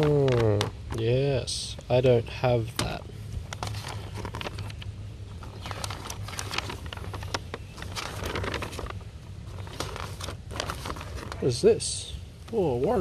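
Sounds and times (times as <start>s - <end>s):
steady low hum: 0.0s - 13.0s
paper pages rustling: 2.7s - 11.6s.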